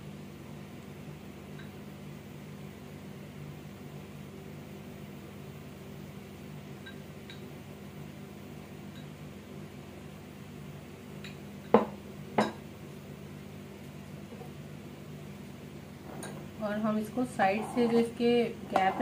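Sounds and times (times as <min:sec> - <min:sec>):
low mechanical hum: 0:00.0 - 0:19.0.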